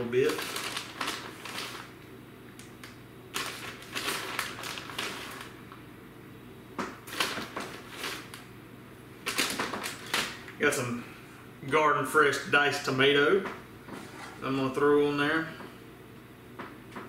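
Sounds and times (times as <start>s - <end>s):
plastic bag crinkling: 0.0s - 2.0s, 2.6s - 5.8s, 7.0s - 8.5s, 9.2s - 10.6s.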